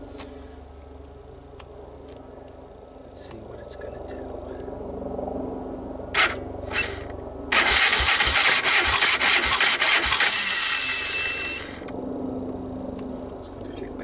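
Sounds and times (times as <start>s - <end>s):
engine cranking without starting: 6.2s - 11.9s.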